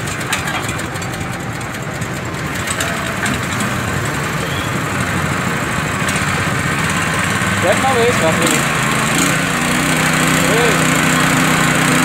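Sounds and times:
water pump engine idling: 0:00.0 - 0:12.0.

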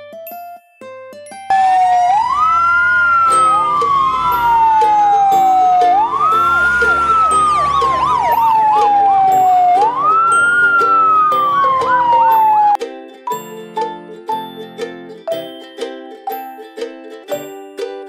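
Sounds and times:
fire engine siren wailing: 0:01.5 - 0:12.8
siren yelping: 0:01.5 - 0:12.8.

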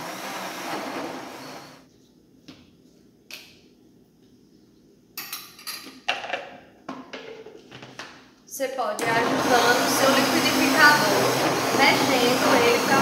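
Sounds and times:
blender motor: 0:00.0 - 0:01.8, 0:09.0 - 0:13.0.

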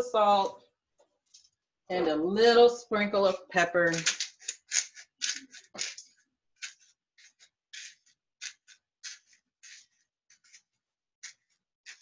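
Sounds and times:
pepper shaker rasping: 0:03.8 - 0:10.6.

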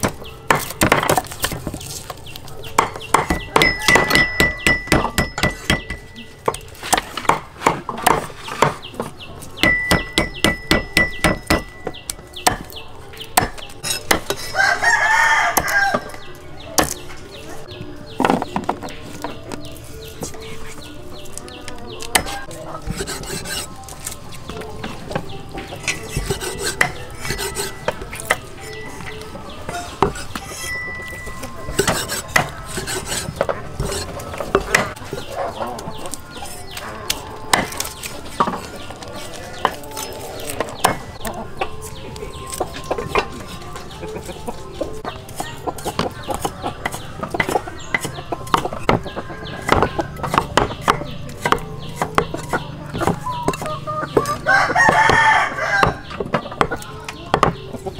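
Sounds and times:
cleaver chopping on wooden block: 0:00.0 - 0:01.8, 0:02.8 - 0:14.6, 0:22.0 - 0:23.7, 0:25.9 - 0:28.4, 0:29.7 - 0:30.7, 0:31.7 - 0:35.0, 0:39.6 - 0:41.1, 0:45.4 - 0:57.6
chickens clucking: 0:00.0 - 0:57.9
rooster crowing: 0:14.4 - 0:16.2, 0:54.3 - 0:56.1.

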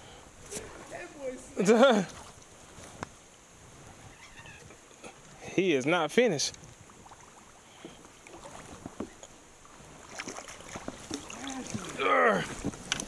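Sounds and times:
water sounds: 0:00.0 - 0:13.0
person calling out: 0:11.4 - 0:12.5.

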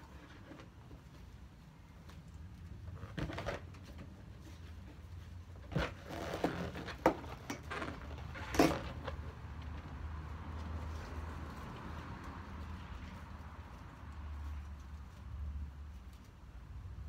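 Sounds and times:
balloon handling knocks and rustles: 0:02.8 - 0:09.2.

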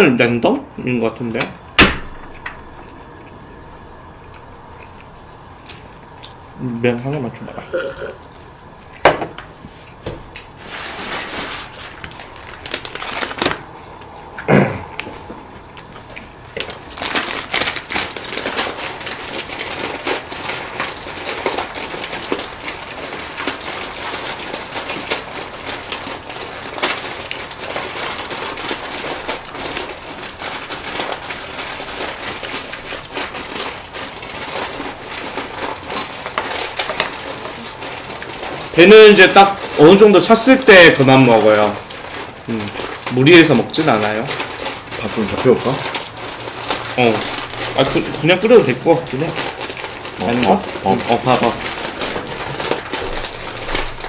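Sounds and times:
close-miked noodle chewing: 0:04.1 - 0:06.4.

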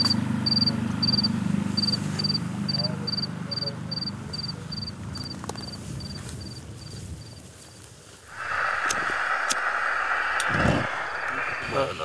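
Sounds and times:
cricket chirping: 0:00.0 - 0:07.4
steady hiss: 0:08.0 - 0:12.0.

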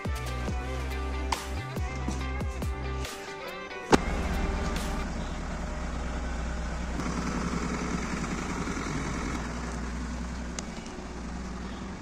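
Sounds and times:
car engine idling: 0:03.8 - 0:12.0.

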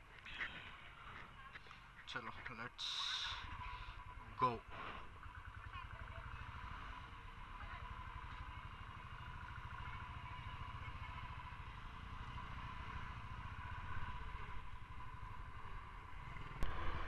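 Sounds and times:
motorcycle engine pulling away: 0:05.2 - 0:17.0.

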